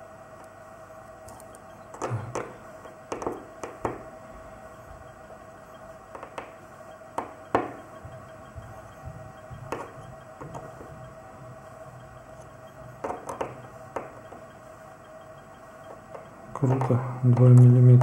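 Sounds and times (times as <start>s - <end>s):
screwdriver clicks and taps on metal: 13.0s - 14.4s.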